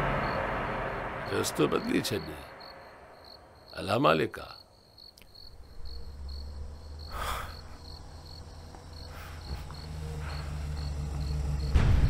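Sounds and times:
low note: 0.0s - 3.6s
low hum: 0.0s - 3.9s, 5.4s - 12.0s
crickets chirping: 0.0s - 12.0s.

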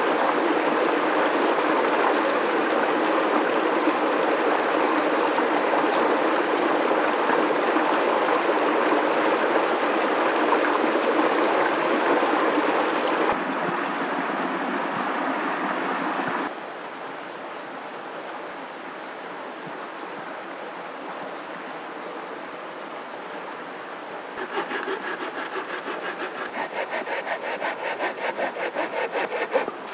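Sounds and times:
stream running over rocks: 24.4s - 29.9s.

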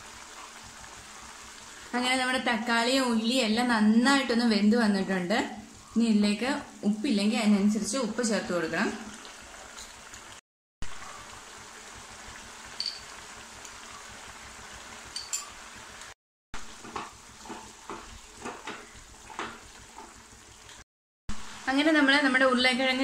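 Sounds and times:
gravy simmering and sizzling: 0.0s - 23.0s
spatula knocking and scraping pan: 16.6s - 20.2s.

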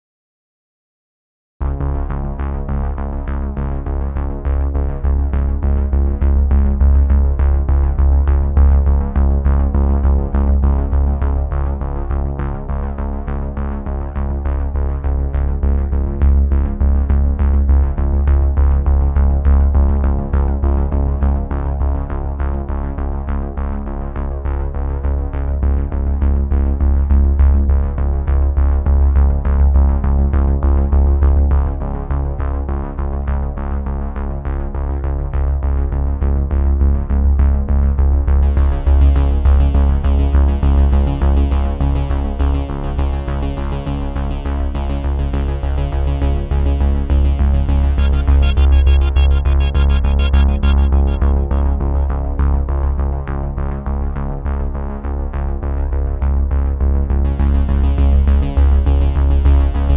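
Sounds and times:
electronic music with synth and bass: 1.6s - 22.4s, 37.3s - 53.7s, 57.2s - 59.9s.

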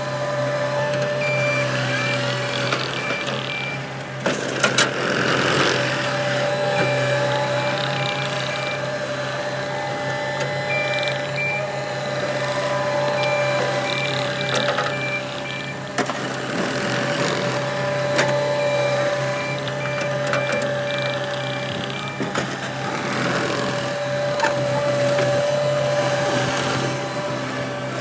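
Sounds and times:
diesel engine running with whine: 0.0s - 28.0s
reverse alarm beeping: 0.5s - 3.9s, 6.2s - 9.6s, 10.2s - 15.9s, 17.2s - 22.3s.

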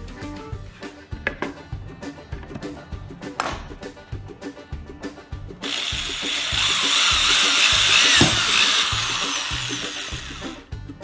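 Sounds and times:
background music with beat: 0.0s - 11.0s
electric drill drilling into plastic: 5.6s - 10.6s.

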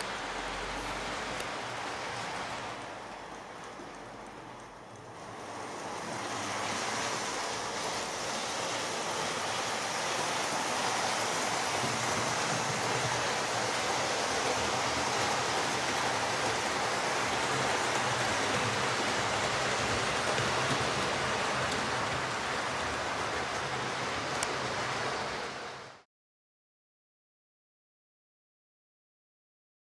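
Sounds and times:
model trains running on rails: 0.0s - 26.1s.

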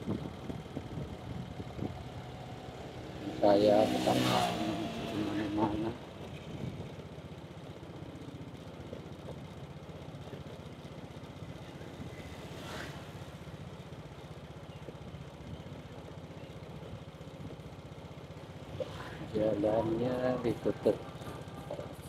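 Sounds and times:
motorcycle engine running: 0.0s - 22.0s
motorcycle passing by: 1.3s - 6.6s, 12.0s - 13.8s.

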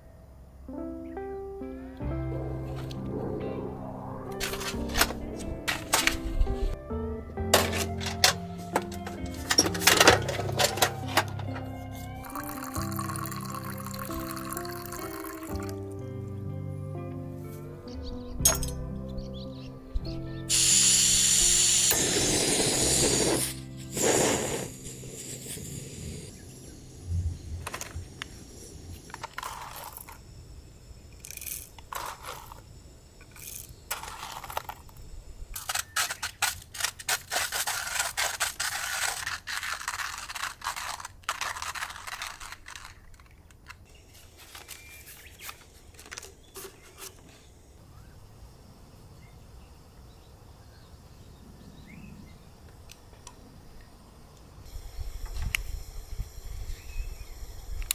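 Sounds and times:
objects clicking and knocking: 7.6s - 11.6s, 33.2s - 35.0s, 35.6s - 47.3s.

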